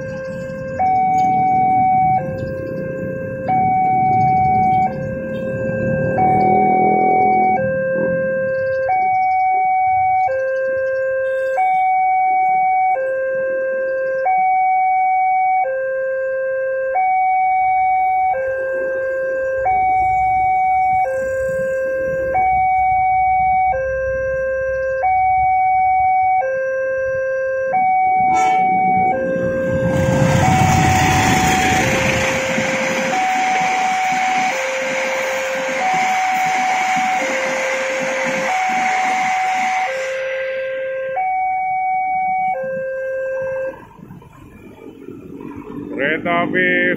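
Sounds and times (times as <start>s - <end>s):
train passing on rails: 0.0s - 7.6s, 28.2s - 40.8s
two-tone crossing alarm: 0.0s - 46.9s.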